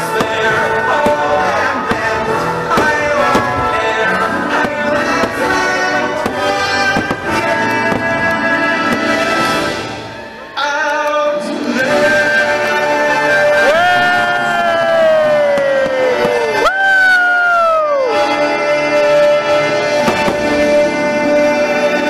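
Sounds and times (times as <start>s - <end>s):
fireworks popping: 0.0s - 10.2s, 15.2s - 16.6s, 19.8s - 21.1s
music with singing: 0.0s - 22.0s.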